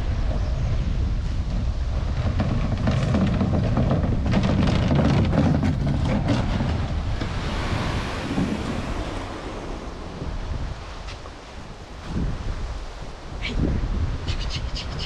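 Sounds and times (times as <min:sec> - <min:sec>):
wind buffeting the microphone: 0:00.0 - 0:15.0
water splashes: 0:06.4 - 0:13.4.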